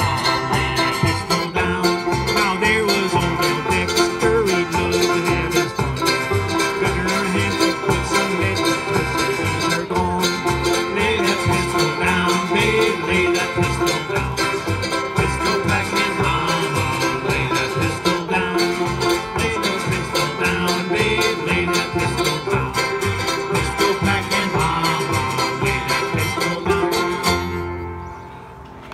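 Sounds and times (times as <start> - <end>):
banjo: 0.0 - 27.9
mandolin: 0.0 - 28.2
acoustic guitar: 0.0 - 28.9
bluegrass string band playing: 0.0 - 28.9
upright bass: 0.0 - 28.9.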